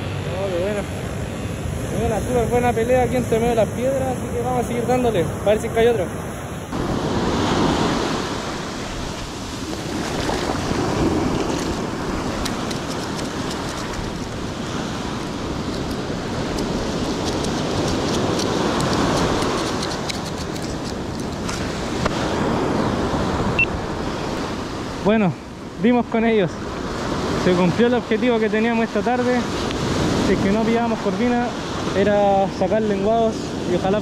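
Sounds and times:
surf breaking on rocky shore: 0:06.7 - 0:23.6.

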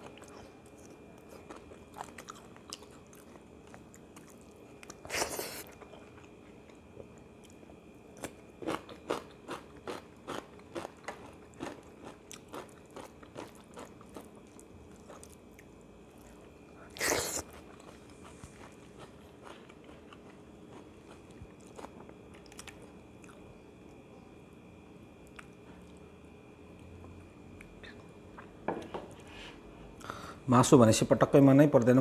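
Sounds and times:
man chewing food: 0:00.0 - 0:24.1, 0:25.2 - 0:26.1.

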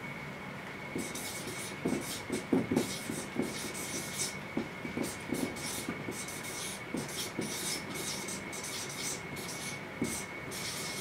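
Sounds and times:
marker tip tapping board: 0:01.0 - 0:10.7
marker squeaking on whiteboard: 0:01.0 - 0:11.0.

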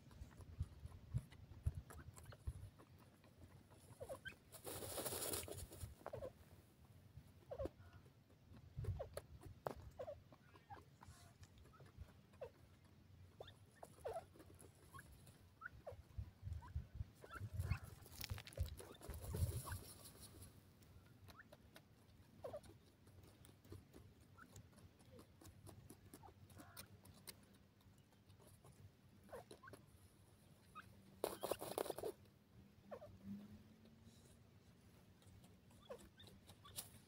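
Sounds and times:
scratching of dry soil: 0:00.0 - 0:06.5, 0:07.2 - 0:32.3, 0:33.0 - 0:37.0
rustling: 0:00.0 - 0:06.6, 0:13.4 - 0:21.0
faint bird chirps: 0:32.7 - 0:34.4.

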